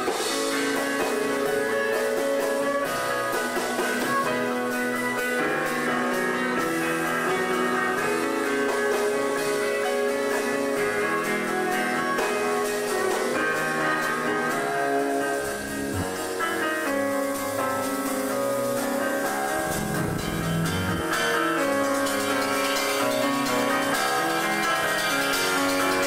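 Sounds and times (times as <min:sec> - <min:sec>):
guitar: 0:00.0 - 0:26.0
piano: 0:00.0 - 0:26.0
bowed violin notes: 0:19.6 - 0:21.2.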